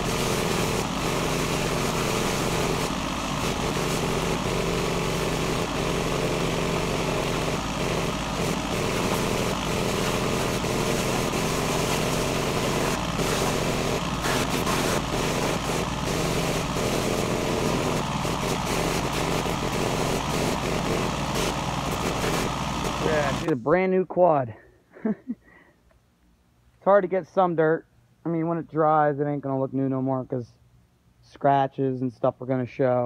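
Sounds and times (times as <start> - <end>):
pressure washer engine running: 0.0 - 23.6.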